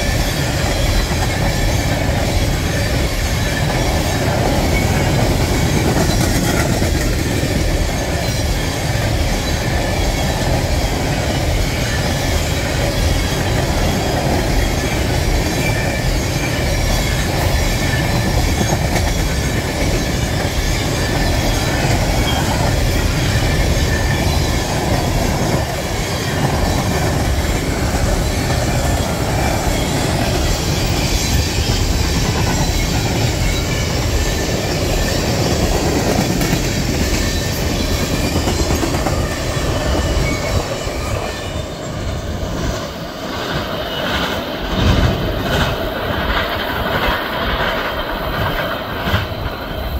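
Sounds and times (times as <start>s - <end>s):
high wheel squeal: 0.0s - 49.9s
train wheels rumbling on rails: 0.0s - 49.9s.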